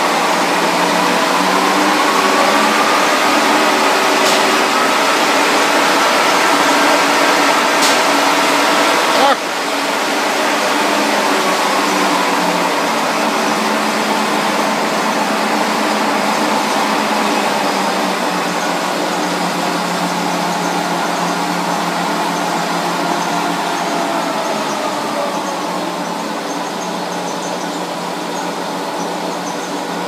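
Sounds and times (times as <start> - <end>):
machine whirring with steady tones: 0.0 - 30.0.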